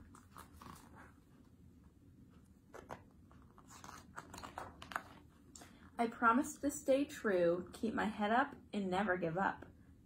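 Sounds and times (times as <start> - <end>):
book page turning: 0.0 - 1.4, 2.6 - 5.4.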